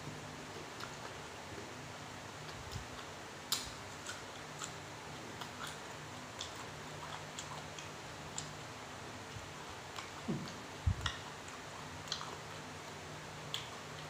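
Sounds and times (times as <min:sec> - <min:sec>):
person chewing food: 0:00.6 - 0:01.7, 0:02.4 - 0:14.0.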